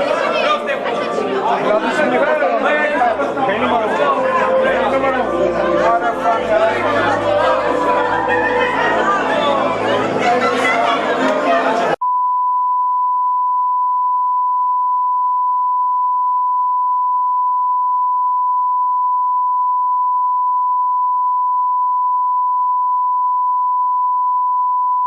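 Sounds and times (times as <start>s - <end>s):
steady sine test tone: 12.0s - 25.0s.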